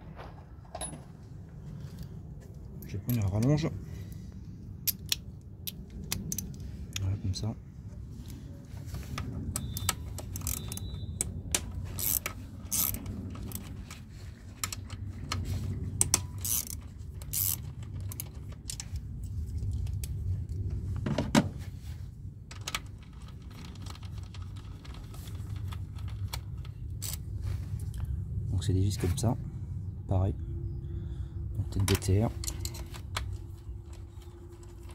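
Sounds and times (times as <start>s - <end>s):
low rumble: 0.0s - 34.9s
ratchet wrench clicking: 9.6s - 11.0s, 12.0s - 13.6s, 16.0s - 18.8s.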